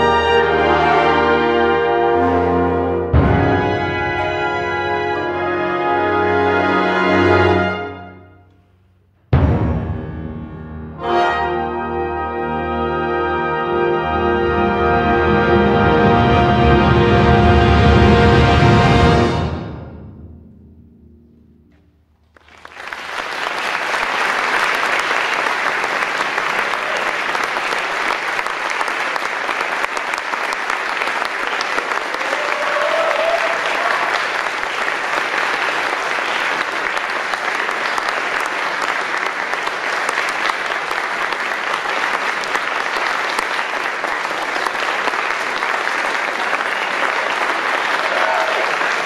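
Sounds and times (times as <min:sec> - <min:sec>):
wind ensemble chord: 0:00.0 - 0:08.2, 0:09.4 - 0:21.8
audience applause: 0:22.3 - 0:49.0.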